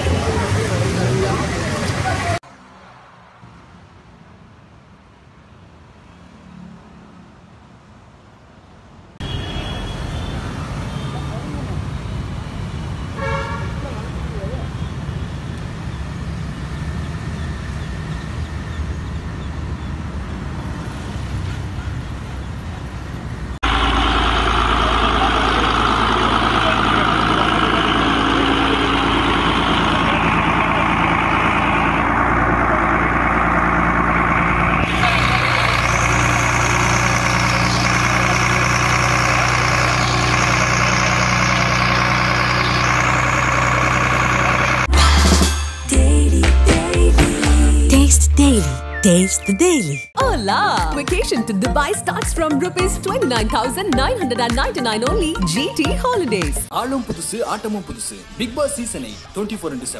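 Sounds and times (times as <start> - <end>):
water pump engine running: 23.6 - 44.9.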